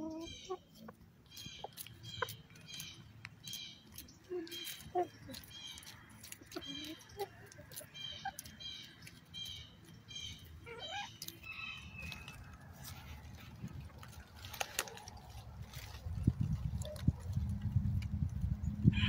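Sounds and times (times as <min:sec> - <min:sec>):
chickens pecking: 0:00.0 - 0:19.0
high bird chirps: 0:00.1 - 0:12.4.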